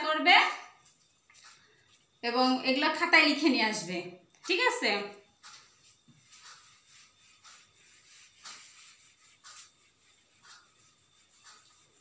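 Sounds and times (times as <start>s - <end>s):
eraser swishing on whiteboard: 5.3s - 12.0s.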